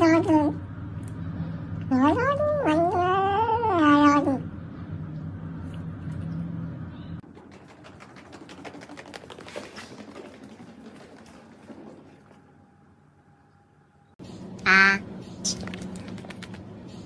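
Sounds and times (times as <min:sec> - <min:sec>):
steady low hum: 0:00.0 - 0:08.4, 0:12.1 - 0:17.0.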